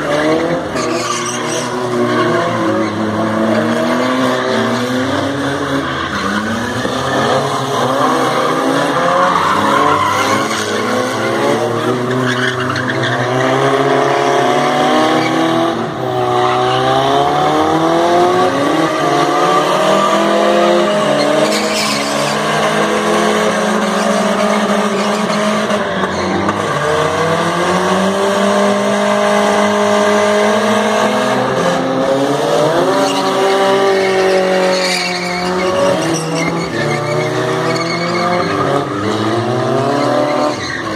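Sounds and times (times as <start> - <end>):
tyres squealing on concrete: 0.1 - 14.0, 18.6 - 22.8, 23.4 - 27.0, 32.8 - 40.9.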